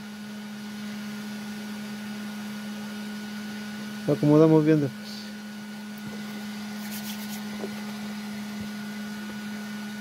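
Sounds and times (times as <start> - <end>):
electric dryer humming: 0.0 - 10.0.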